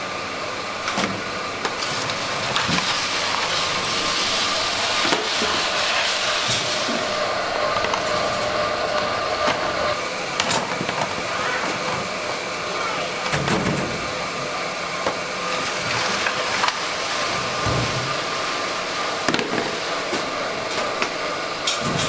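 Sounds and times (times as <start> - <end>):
plastic crate scraping on concrete: 1.7 - 9.8.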